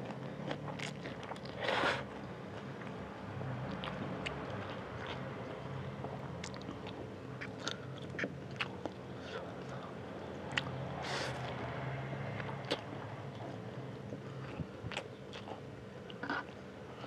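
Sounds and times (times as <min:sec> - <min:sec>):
wet chewing and mouth clicks: 0:00.0 - 0:01.6, 0:03.7 - 0:09.0, 0:13.4 - 0:16.6.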